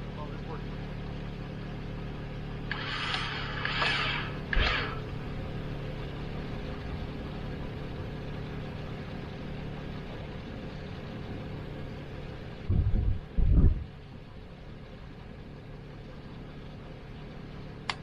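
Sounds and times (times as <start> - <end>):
low rumble bursts: 0.0 - 17.8
car engine idling: 0.0 - 18.0.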